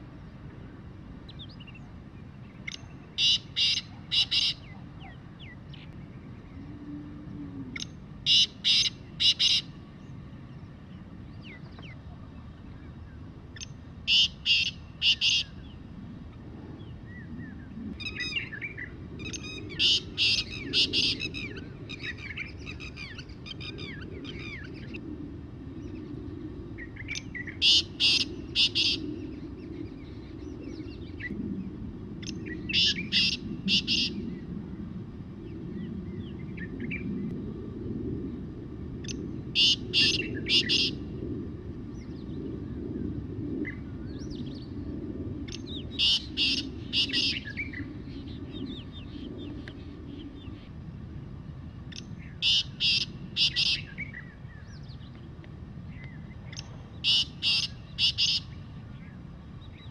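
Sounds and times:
francolin calling: 2.6 - 5.9, 7.8 - 9.8, 13.6 - 15.7, 18.0 - 24.6, 27.1 - 29.1, 32.3 - 34.2, 39.6 - 41.0, 45.5 - 48.4, 51.9 - 54.3, 56.5 - 58.6.

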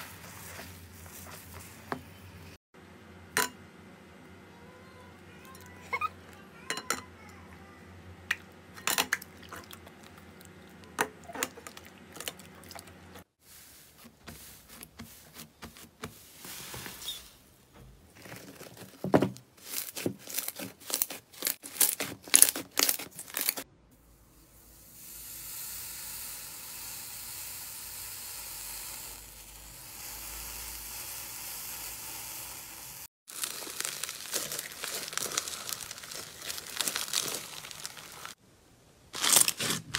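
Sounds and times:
crinkly crackling: 18.1 - 23.6, 33.3 - 38.4, 39.1 - 39.9
steady hiss: 24.0 - 33.1.

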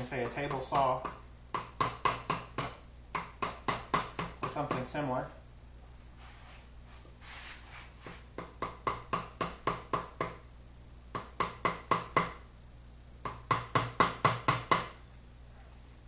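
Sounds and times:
mallet tapping wood chisel: 0.2 - 4.9, 8.4 - 10.4, 11.1 - 12.4, 13.2 - 15.0.

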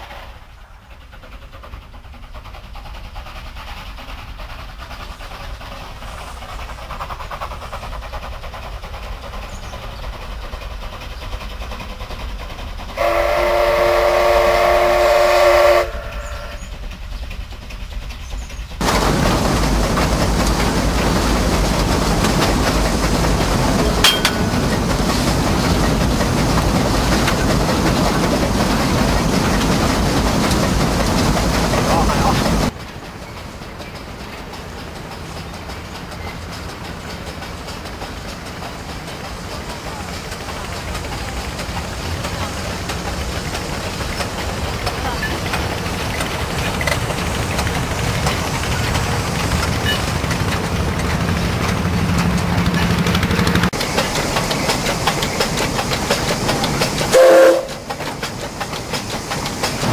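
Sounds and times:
steam locomotive exhaust: 0.0 - 59.9
steam whistle blast: 13.0 - 16.7, 57.1 - 57.8
loud steady rushing noise: 18.8 - 35.2.

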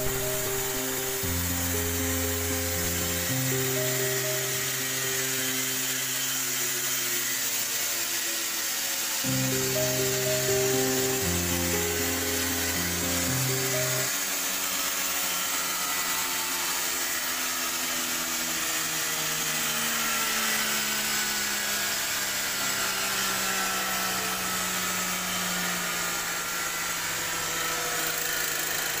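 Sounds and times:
pneumatic pump air motor hissing: 0.0 - 14.7.

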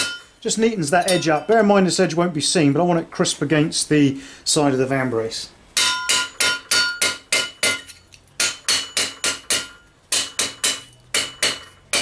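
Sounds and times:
hammer striking steel chisel: 0.0 - 0.3, 5.8 - 12.0.

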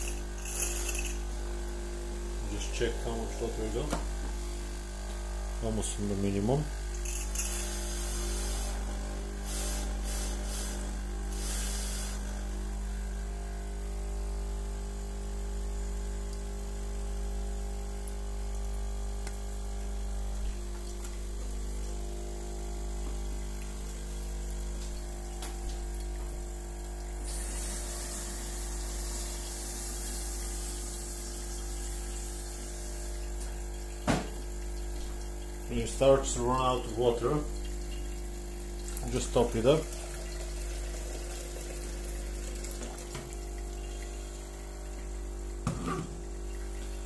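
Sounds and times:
espresso machine pump humming: 0.0 - 47.0
water and steam hissing: 9.4 - 12.3, 27.2 - 32.9.

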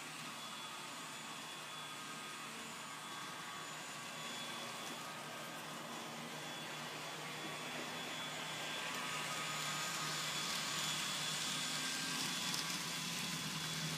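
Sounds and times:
faint high whine: 0.0 - 13.9
model train motors whirring: 6.4 - 13.9.

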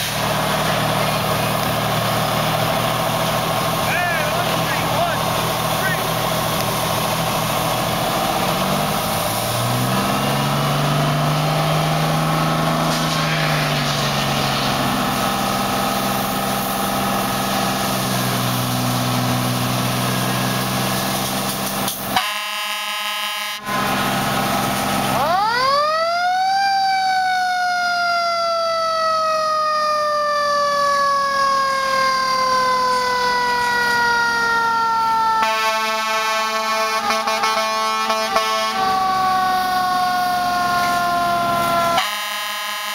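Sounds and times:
water spraying from hoses: 0.0 - 22.8, 23.7 - 25.7
fire engine motors and pumps: 0.0 - 42.9
mechanical fire siren: 21.9 - 24.3, 25.0 - 42.9
horn blast: 22.1 - 24.0, 35.4 - 39.1, 41.8 - 42.9
air horn: 22.2 - 23.7, 35.4 - 39.0, 41.8 - 42.9.

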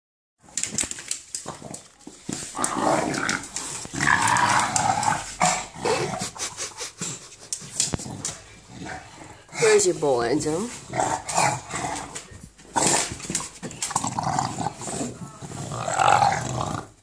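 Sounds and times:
dog scuffling and rustling: 0.4 - 5.4, 7.4 - 16.4
dog growling: 2.5 - 9.9, 10.7 - 17.0.

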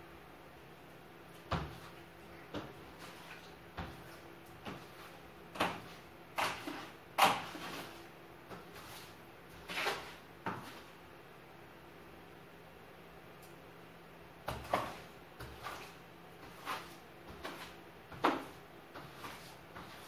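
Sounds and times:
broom knocking and scraping floor: 1.5 - 2.0, 2.6 - 10.9, 14.5 - 20.0.

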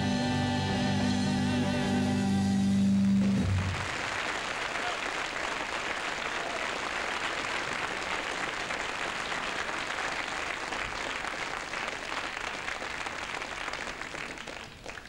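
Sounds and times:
audience applause: 3.0 - 15.0.

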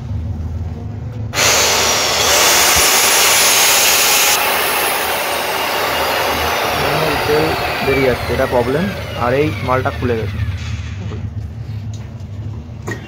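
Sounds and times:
electric chainsaw running: 1.4 - 10.6.

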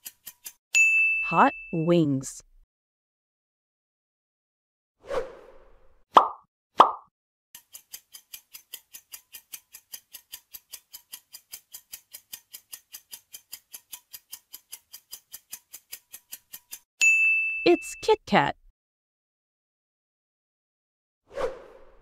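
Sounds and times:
clock-like ticking: 0.0 - 0.6, 7.6 - 16.9.

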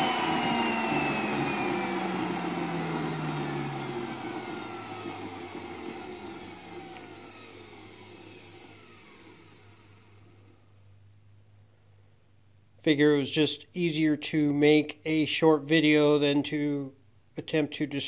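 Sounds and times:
electric motor winding down: 0.0 - 10.6.

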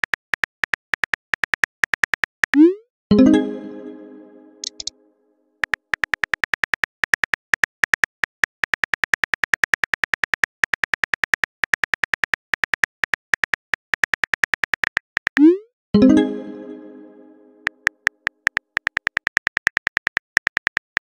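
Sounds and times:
phone keyboard typing clicks: 4.6 - 4.9, 5.6 - 15.5, 17.6 - 21.0.

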